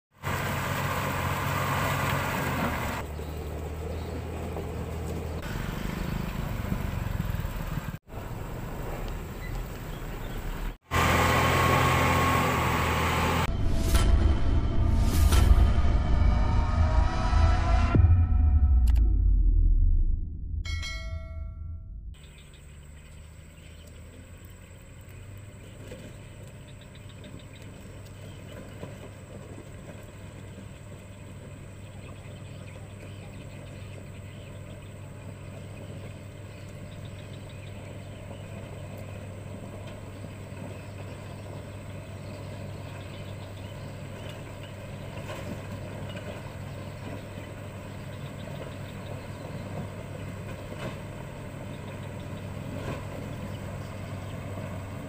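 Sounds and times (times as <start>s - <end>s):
grader diesel engine running: 0.1s - 15.6s, 22.1s - 55.0s
chime jingle: 20.7s - 22.1s.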